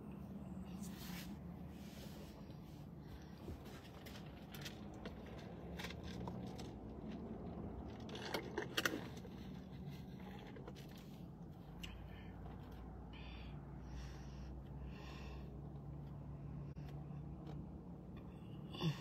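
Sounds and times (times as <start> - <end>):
low steady hum: 0.0 - 19.0
small clicks and scrapes: 3.3 - 12.9.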